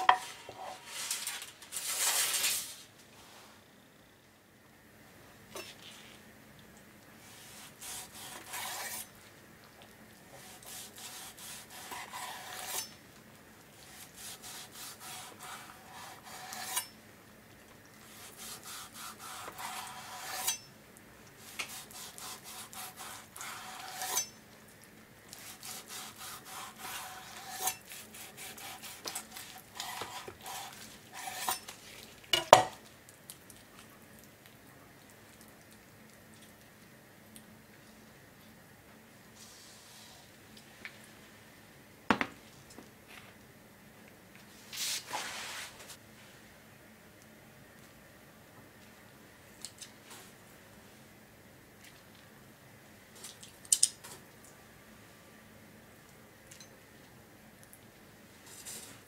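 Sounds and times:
knife slicing meat on board: 7.4s - 9.1s, 25.4s - 31.7s.

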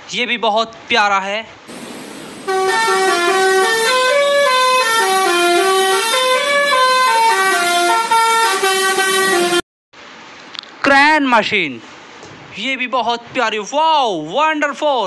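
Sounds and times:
truck musical horn playing tune: 2.4s - 9.6s.

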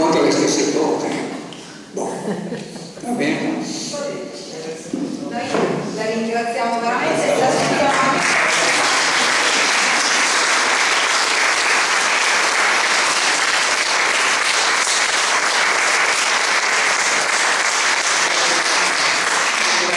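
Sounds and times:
audience applauding: 7.0s - 19.9s.

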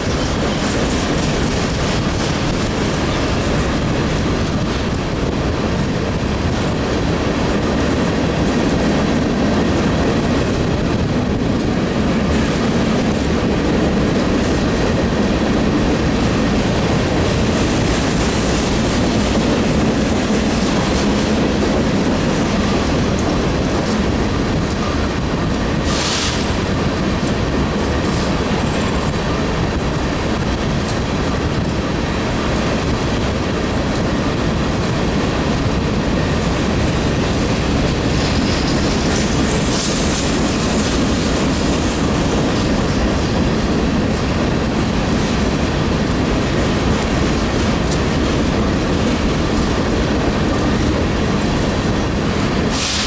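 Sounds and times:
steel wheels on rails: 0.0s - 53.0s
brief high hiss: 25.9s - 26.5s, 52.7s - 53.0s.

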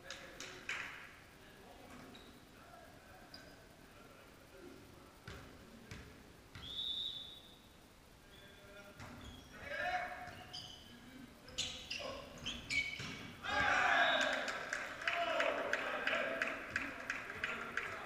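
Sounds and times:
short high whistle: 6.6s - 7.6s
sneakers squeaking on wooden floor: 8.3s - 13.4s
players shouting: 13.4s - 18.0s.

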